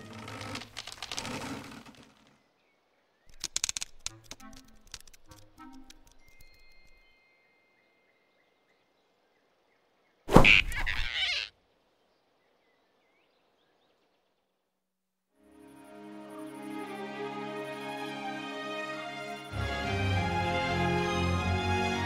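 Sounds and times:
cartoon swoosh: 10.3s - 11.5s.

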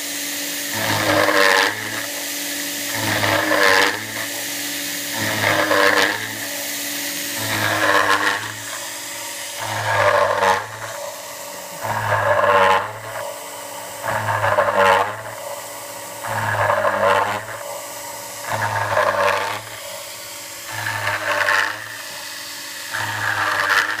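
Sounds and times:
mill bit cutting metal: 0.0s - 24.0s
spindle whine: 0.7s - 24.0s.

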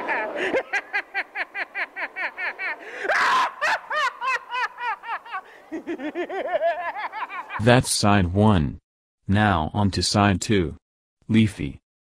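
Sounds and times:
person laughing high-pitched: 0.0s - 7.7s.

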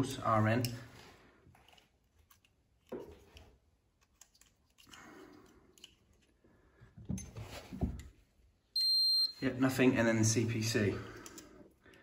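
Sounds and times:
faint handling clicks and rustles: 0.4s - 8.4s.

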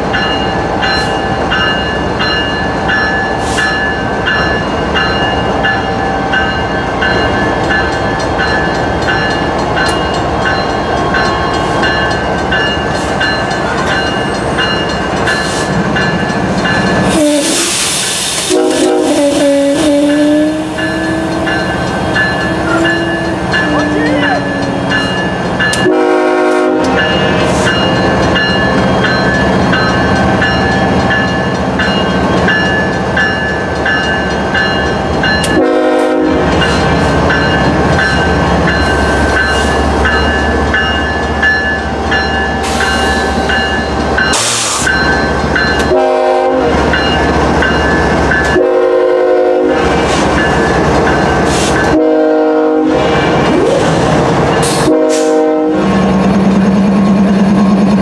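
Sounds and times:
diesel locomotives rumbling: 0.0s - 58.0s
train horn blasts: 17.1s - 17.8s, 18.4s - 21.6s, 25.8s - 27.5s, 35.4s - 36.6s, 45.8s - 46.8s, 48.5s - 49.9s, 51.9s - 53.1s, 54.7s - 56.0s
air hiss: 17.2s - 18.9s.

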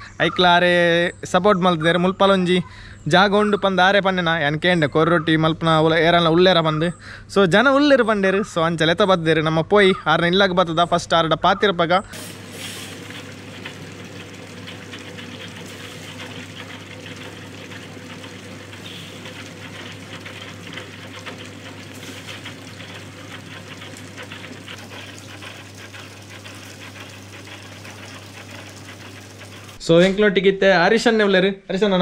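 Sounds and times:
dough mixer humming: 12.2s - 29.8s
water pouring and splashing: 12.2s - 29.8s.

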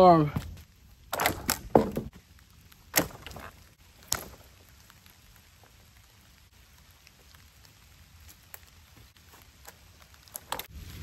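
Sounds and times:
dry branches snapping: 1.1s - 2.2s, 2.8s - 5.0s.

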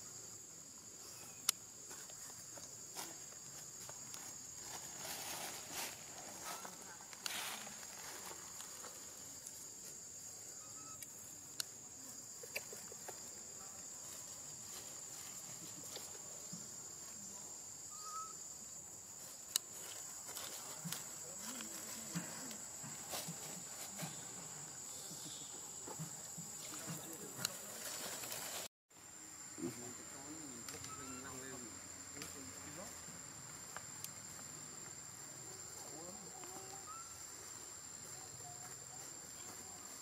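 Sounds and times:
high-pitched insect drone: 29.0s - 40.0s.

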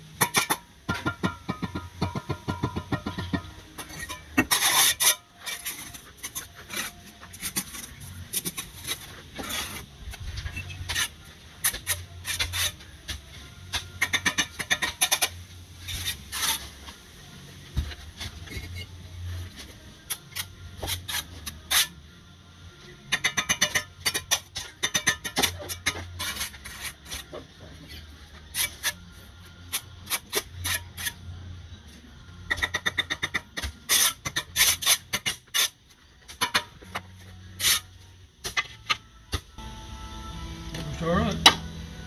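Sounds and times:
trowel tapping and scraping bricks: 0.2s - 9.9s, 10.5s - 16.6s, 23.1s - 27.9s, 32.5s - 37.8s.

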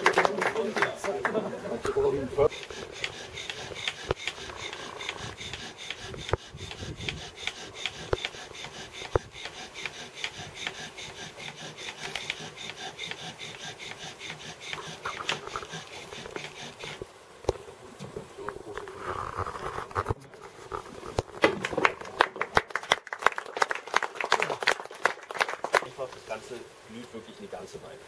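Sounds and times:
bow drill rasping: 1.9s - 17.1s, 18.7s - 21.4s.

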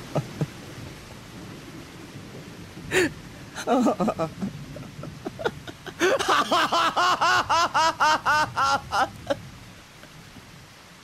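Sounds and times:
man laughing: 0.0s - 0.6s, 2.9s - 9.4s.

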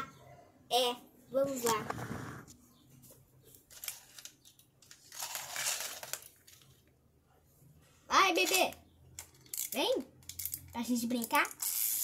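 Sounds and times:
plastic toys clicking on tile: 8.4s - 12.0s.

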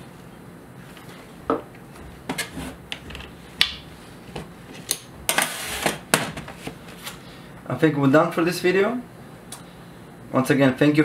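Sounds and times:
scraping rub: 2.0s - 2.8s, 5.3s - 7.2s.

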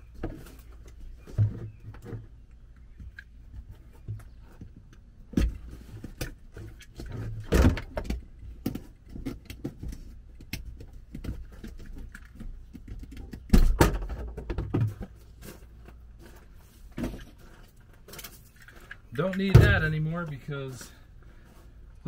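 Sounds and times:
plastic lid clunks and rattles: 5.3s - 10.1s, 12.8s - 15.2s.

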